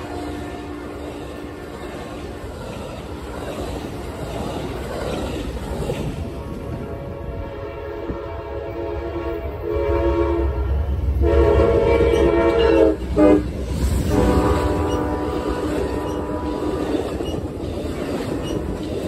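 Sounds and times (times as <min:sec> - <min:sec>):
train horn blasts: 0:00.0 - 0:02.5, 0:06.8 - 0:17.0
diesel locomotive engine rumble: 0:00.0 - 0:19.0.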